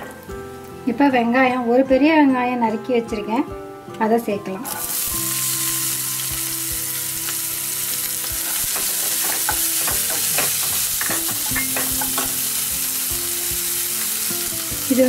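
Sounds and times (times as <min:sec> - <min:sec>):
onions sizzling in hot oil: 0:04.7 - 0:15.0
wooden spatula tapping a pan: 0:08.6 - 0:12.4.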